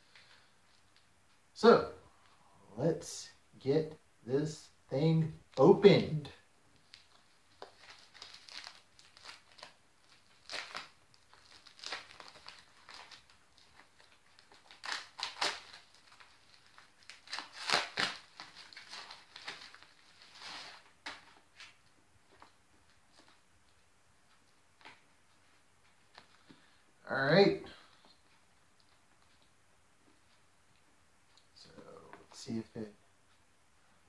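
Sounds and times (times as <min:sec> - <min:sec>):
package wrapping tearing and crinkling: 0:06.8 - 0:21.8.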